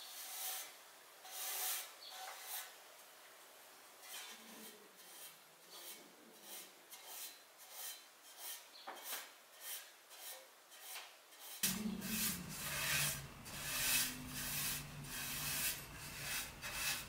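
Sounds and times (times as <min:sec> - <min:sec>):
brush strokes in metal pan: 0:04.0 - 0:17.0.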